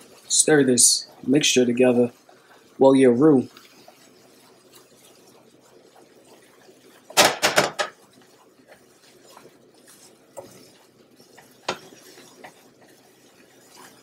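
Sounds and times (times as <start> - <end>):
utensil knocking on a saucepan: 7.2 - 8.0.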